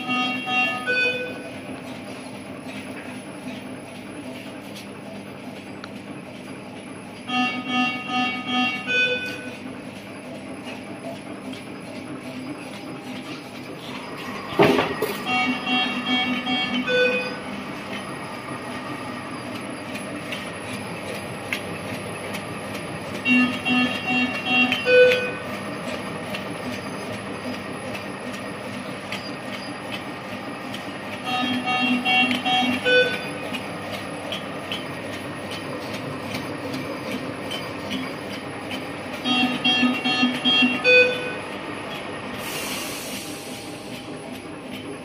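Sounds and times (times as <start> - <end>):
cutting machine whirring: 7.2 - 42.4.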